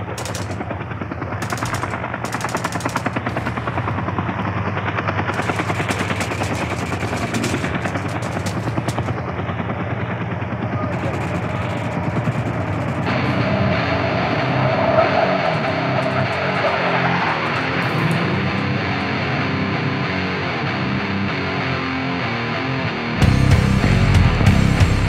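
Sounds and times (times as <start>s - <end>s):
machine-gun fire: 0.0s - 13.9s
low steady drone: 0.0s - 22.1s.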